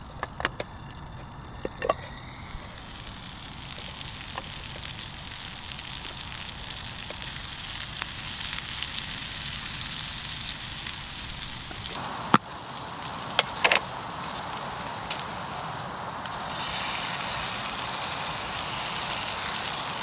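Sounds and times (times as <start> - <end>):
sharp clicks and knocks: 0.0 - 2.2
bacon sizzling in a pan: 0.0 - 20.0.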